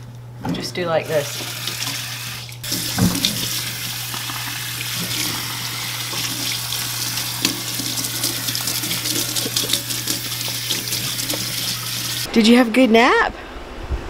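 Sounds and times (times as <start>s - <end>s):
water running into sink: 1.0s - 12.3s
water splashing: 1.1s - 12.3s.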